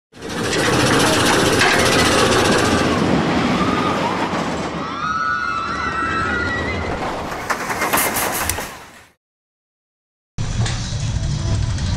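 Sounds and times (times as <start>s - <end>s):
loud rush with rumble: 0.2s - 4.9s
squealing gliding tones: 0.4s - 7.0s.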